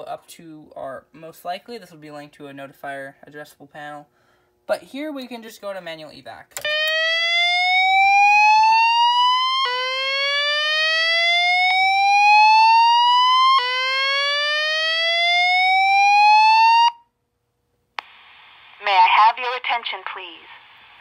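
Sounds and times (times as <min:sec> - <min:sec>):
fire alarm whoop tone: 0:06.6 - 0:17.1.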